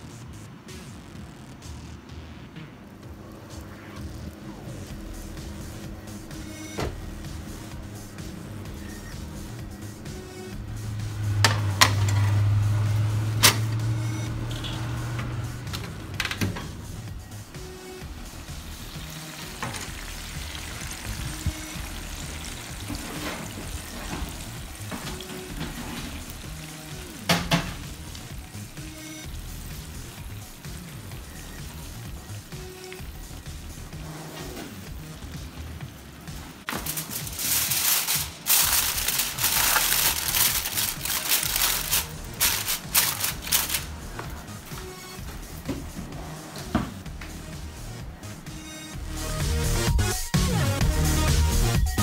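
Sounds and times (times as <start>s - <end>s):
soft background music: 0.0s - 52.0s
fat sizzling in roasting pan: 18.0s - 33.8s, 36.7s - 43.9s
aluminium foil crinkling: 36.7s - 44.1s.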